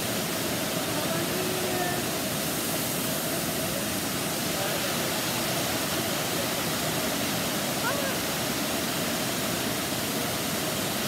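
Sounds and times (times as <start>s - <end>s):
waterfall rushing: 0.0s - 11.0s
faint voices: 3.4s - 8.5s.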